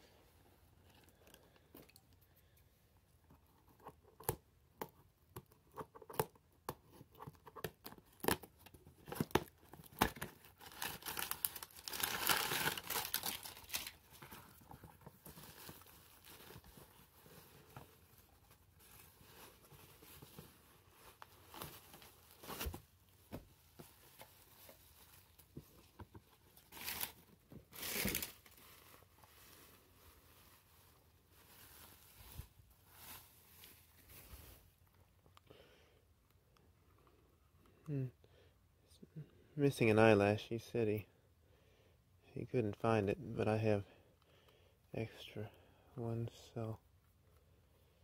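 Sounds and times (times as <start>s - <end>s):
bubble wrap crinkling: 5.8s - 34.9s
tissue paper crinkling: 9.1s - 34.9s.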